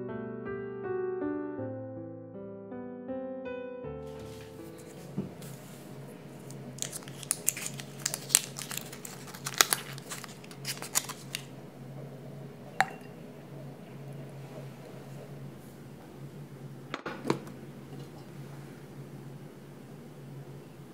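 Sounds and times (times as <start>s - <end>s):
foil wrapper crinkling: 6.4s - 11.5s.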